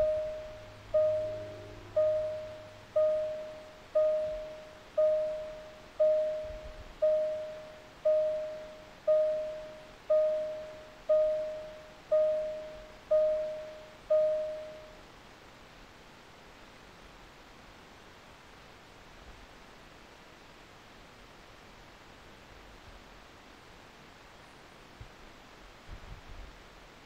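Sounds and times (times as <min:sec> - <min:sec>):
car warning chime dinging: 0:00.0 - 0:15.0.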